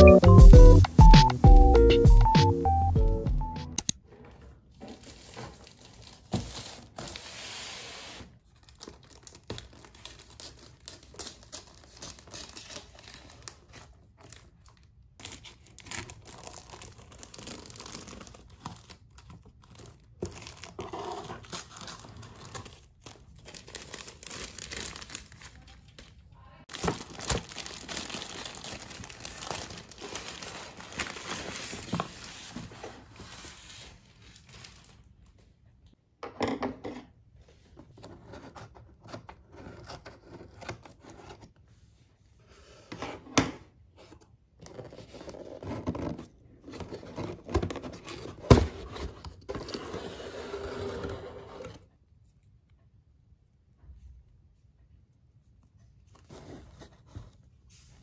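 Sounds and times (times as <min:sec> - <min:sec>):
plastic wrap crinkling and tearing: 0:08.4 - 0:26.1, 0:26.7 - 0:35.1.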